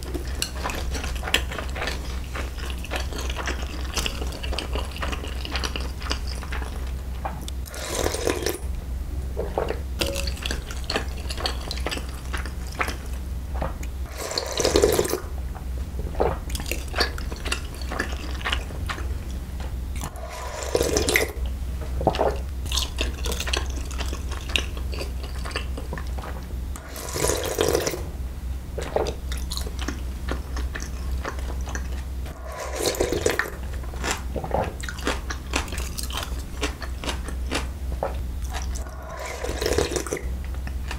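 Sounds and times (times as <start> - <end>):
steady low hum: 0.0 - 40.9
slurping broth from a spoon: 7.7 - 8.6, 20.0 - 21.4, 26.8 - 28.0, 32.3 - 33.7, 38.7 - 40.3.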